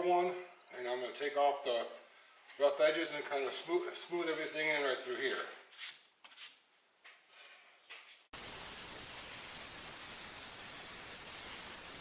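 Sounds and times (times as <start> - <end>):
steady even hiss: 8.3 - 12.0.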